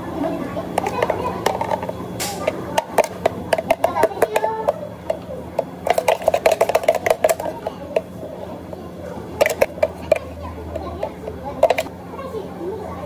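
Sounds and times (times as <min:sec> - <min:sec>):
blender jar clicking and knocking: 0:00.8 - 0:08.1, 0:09.4 - 0:11.9.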